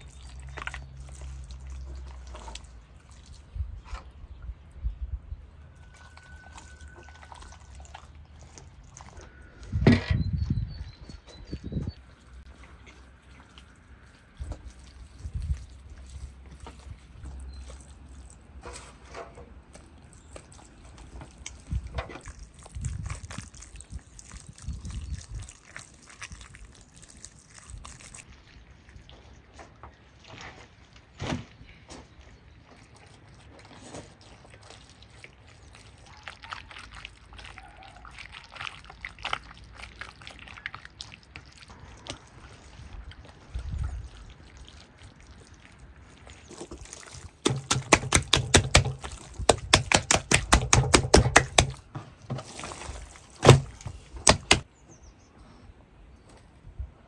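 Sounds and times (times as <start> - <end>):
hands squelching raw meat: 0.0 - 3.7, 5.6 - 18.6, 19.7 - 30.3, 32.1 - 54.7
rapid wet slaps: 46.7 - 51.9, 53.3 - 54.7.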